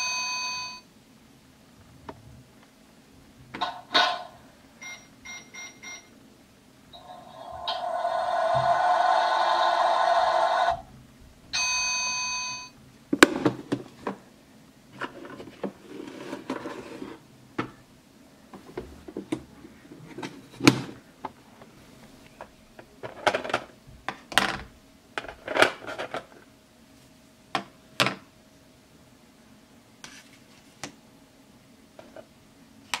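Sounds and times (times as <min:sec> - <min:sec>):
toy oven electronic sound: 0:07.0 - 0:10.8.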